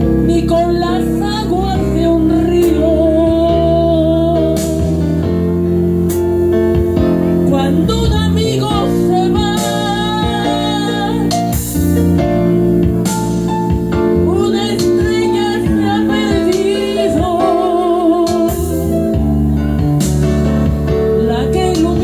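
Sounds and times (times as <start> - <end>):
woman singing with vibrato: 0.2 - 5.0, 7.4 - 11.4, 14.2 - 19.0, 21.2 - 22.0.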